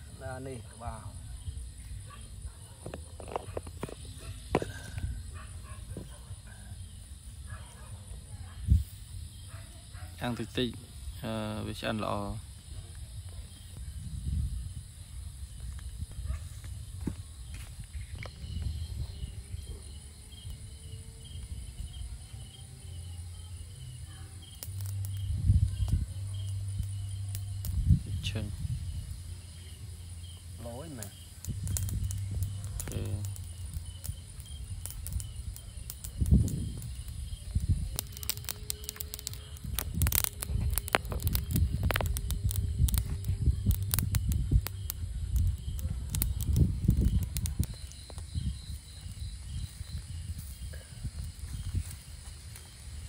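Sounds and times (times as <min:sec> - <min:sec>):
cooking fire crackling: 0:00.0 - 0:53.0
crickets chirping: 0:00.0 - 0:53.0
low rumble: 0:20.7 - 0:30.6, 0:31.2 - 0:51.8.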